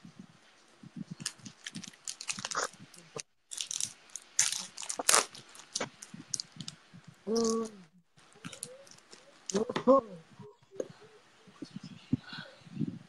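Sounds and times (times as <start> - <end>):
plastic packet crinkling: 1.2 - 7.7, 8.3 - 9.6.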